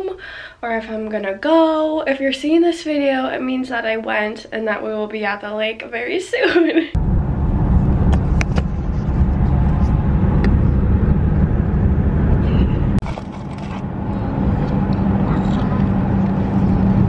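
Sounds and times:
car road and engine rumble: 7.0s - 17.0s.

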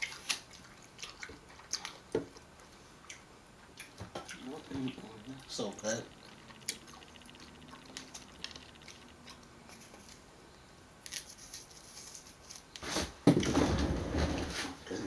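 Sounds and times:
peel rustling: 11.0s - 12.9s.

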